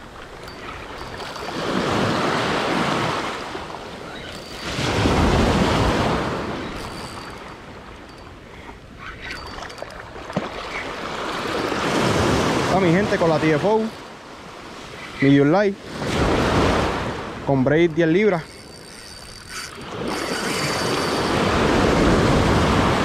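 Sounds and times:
small waves washing in: 0:00.0 - 0:08.1, 0:09.0 - 0:17.5.

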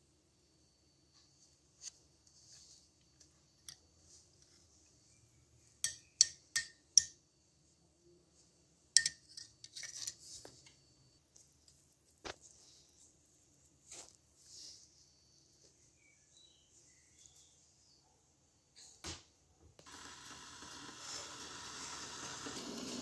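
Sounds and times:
spoon clinking against ceramic mug: 0:05.8 - 0:07.2, 0:09.0 - 0:10.1.

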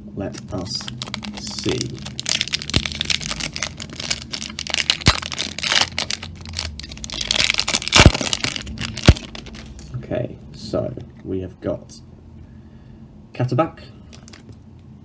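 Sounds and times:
foil wrapper crinkling and tearing: 0:00.3 - 0:09.9, 0:14.1 - 0:14.5.

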